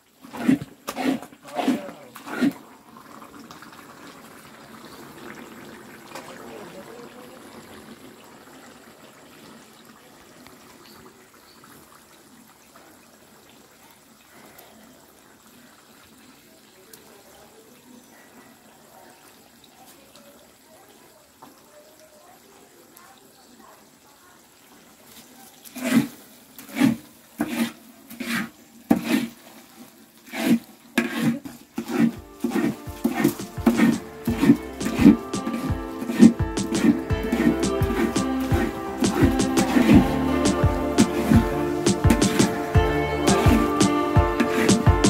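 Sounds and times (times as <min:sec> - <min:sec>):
thick mixture bubbling and sloshing: 0:00.0 - 0:16.6, 0:24.5 - 0:42.4
paddle stirring sticky paste: 0:00.2 - 0:02.7, 0:25.6 - 0:45.0.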